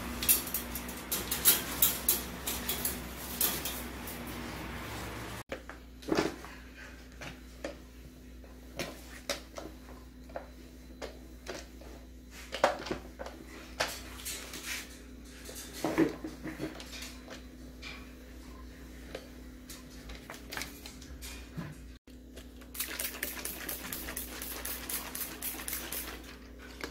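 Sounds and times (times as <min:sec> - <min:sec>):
steady low hum: 0:00.0 - 0:05.4.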